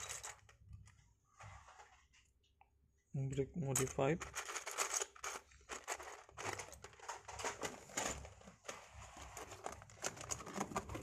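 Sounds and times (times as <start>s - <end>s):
plastic tubs being handled: 0.0s - 11.0s
plastic bricks rattling and clicking: 3.7s - 11.0s.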